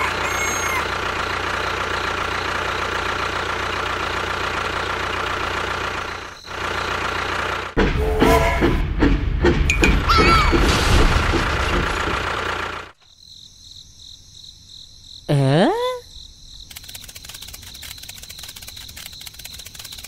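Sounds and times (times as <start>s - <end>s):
crickets chirping: 0.9s - 3.4s, 5.8s - 7.0s, 13.0s - 20.0s
toy motor running: 16.7s - 20.0s.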